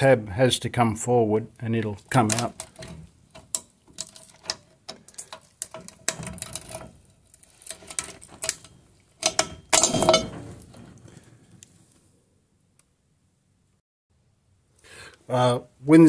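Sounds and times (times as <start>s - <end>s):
metal clicks and knocks: 2.1s - 7.1s, 7.7s - 11.2s
metal clatter with ring: 7.6s - 10.7s.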